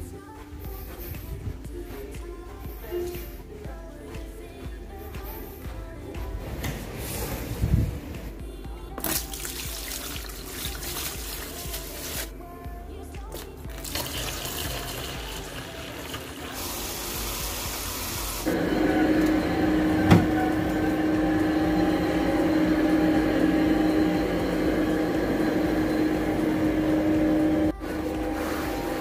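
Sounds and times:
water running into plastic bucket: 9.0s - 12.3s, 13.3s - 21.5s
carpet shampooing machine hum: 16.5s - 29.0s.

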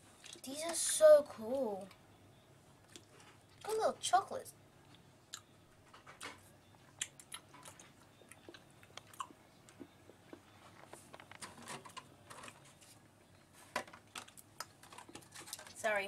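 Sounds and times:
chewing chocolate: 2.8s - 3.7s, 6.2s - 10.9s.

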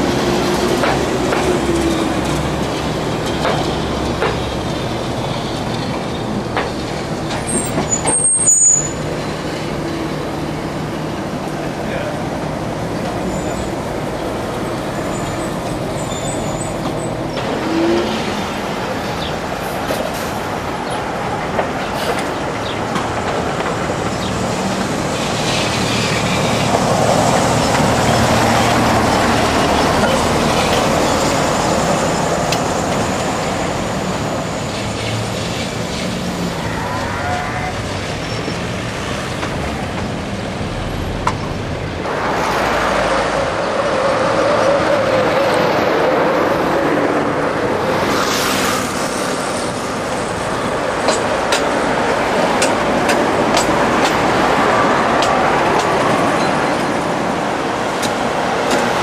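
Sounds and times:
tram wheels clicking over rails: 0.0s - 42.6s, 45.0s - 59.0s
road traffic: 0.0s - 59.0s.

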